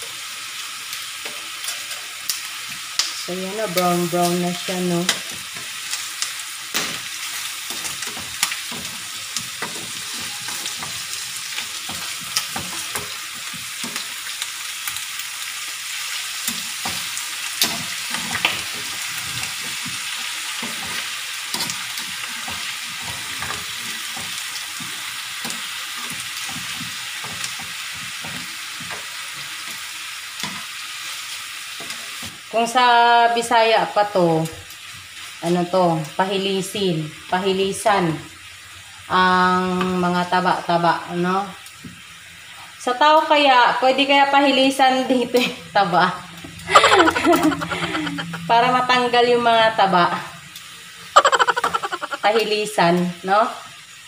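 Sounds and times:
meat sizzling in a frying pan: 0.0s - 54.0s
metal tongs scraping a pan: 1.2s - 2.4s, 3.6s - 14.4s, 16.4s - 31.1s.

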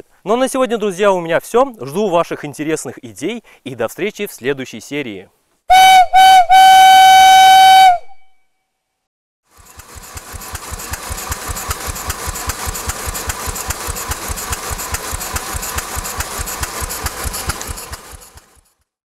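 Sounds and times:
steam engine running: 9.5s - 18.8s.

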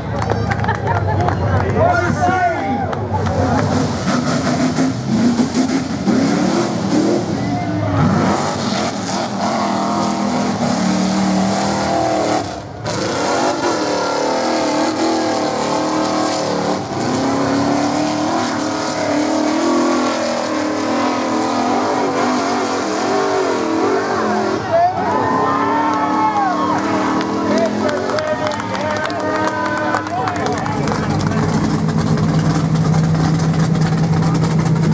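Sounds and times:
engine revving hard: 3.4s - 24.7s.

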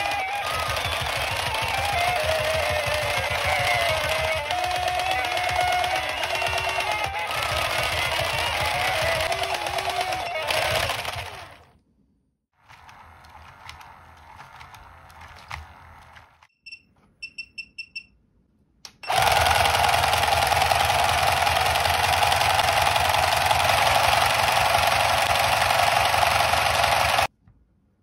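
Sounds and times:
toy gear motor rattling whir: 0.0s - 11.6s, 19.0s - 27.3s
short high beeps: 16.5s - 18.2s.

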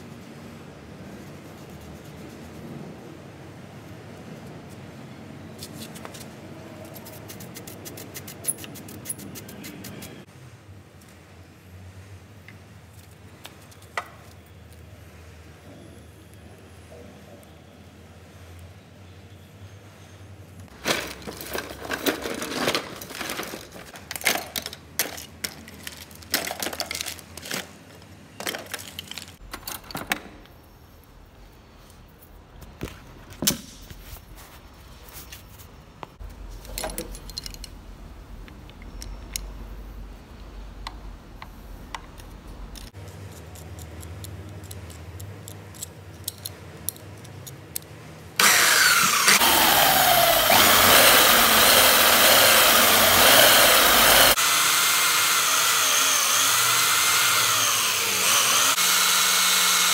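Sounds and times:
metal parts clinking: 36.6s - 37.8s
belt sander grinding metal: 48.4s - 59.9s.

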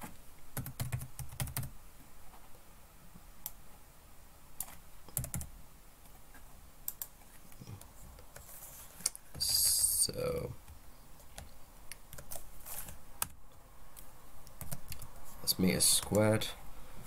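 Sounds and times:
computer keyboard keystrokes: 0.6s - 1.7s, 4.6s - 5.5s, 14.5s - 15.1s.

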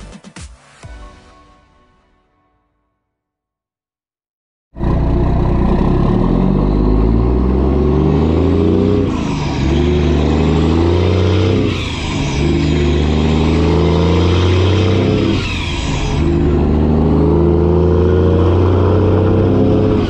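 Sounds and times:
truck engine accelerating: 4.8s - 20.0s.

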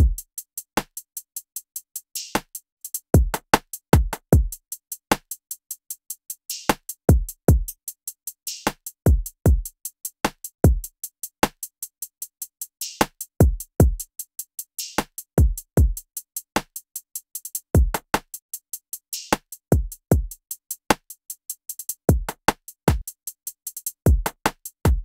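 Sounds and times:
fast hi-hats: 0.0s - 25.0s
snappy snare drum: 2.2s - 2.6s, 3.2s - 5.4s, 8.5s - 9.7s, 10.3s - 11.7s, 14.8s - 16.0s, 17.8s - 18.4s, 19.2s - 21.1s, 22.1s - 23.1s, 23.8s - 25.0s.

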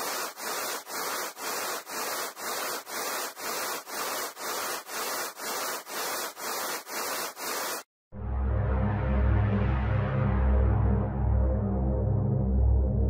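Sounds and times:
pulsing synthetic hiss: 0.0s - 7.8s.

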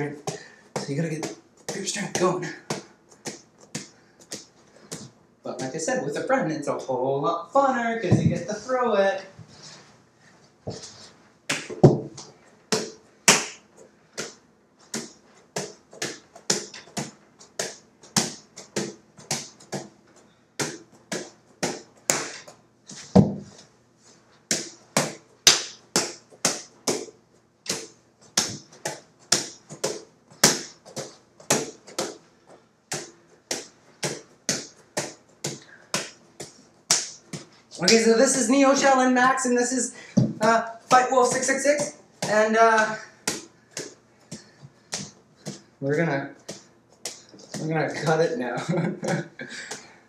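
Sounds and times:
hands slapping a ball: 0.3s - 5.8s, 11.5s - 23.6s, 24.4s - 38.1s, 40.2s - 45.7s, 46.4s - 47.7s
heavy ball thud: 11.5s - 12.2s, 23.0s - 23.6s, 40.2s - 40.6s.

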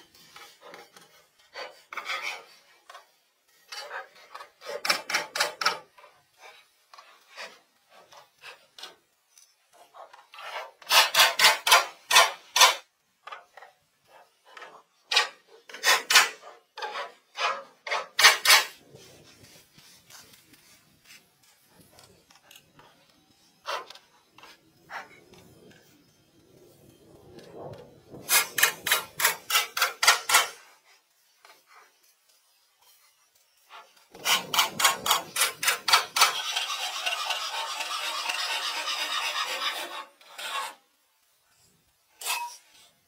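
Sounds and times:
rasping strokes on wood: 34.2s - 40.8s.

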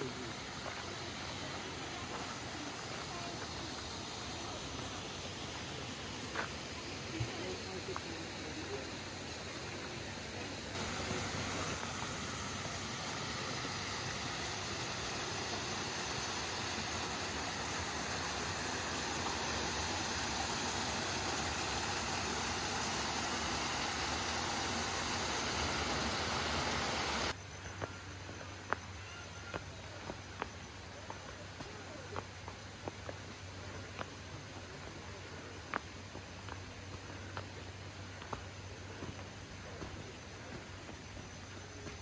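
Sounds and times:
water rushing down rocky cascade: 0.0s - 27.4s.

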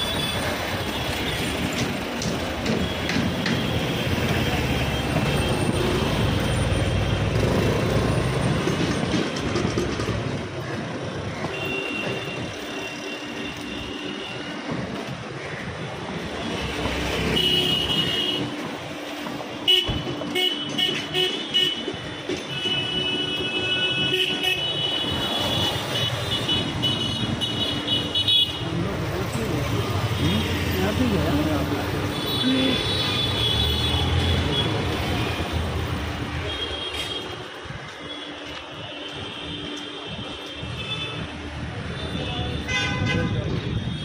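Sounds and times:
vehicle horns honking: 16.4s - 18.6s, 19.6s - 28.7s, 32.0s - 35.6s, 38.1s - 44.0s.

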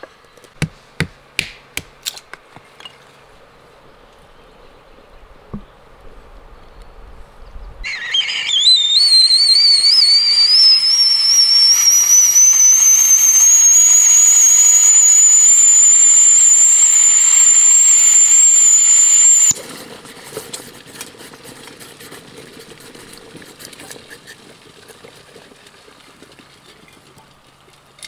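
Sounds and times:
kettle whistling: 7.8s - 19.6s.

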